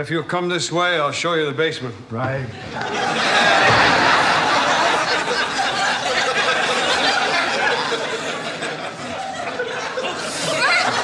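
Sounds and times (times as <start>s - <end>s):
studio audience laughing: 2.6s - 11.0s.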